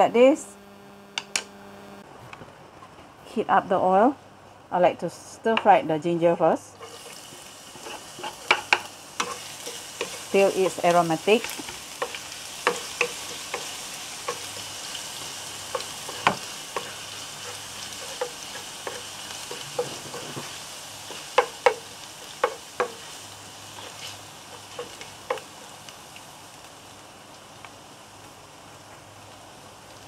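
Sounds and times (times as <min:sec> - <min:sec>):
ginger sizzling in hot oil: 0:06.7 - 0:30.0
utensil scraping a pan: 0:06.8 - 0:25.4.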